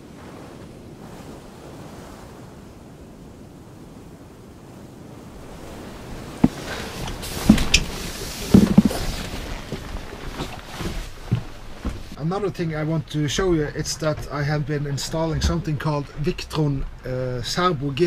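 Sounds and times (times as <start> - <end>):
sea waves: 0.0 - 18.0
wind: 0.0 - 18.0
wind buffeting microphone: 0.0 - 18.0
sharp knocks and thumps: 6.4 - 12.2, 14.0 - 17.0.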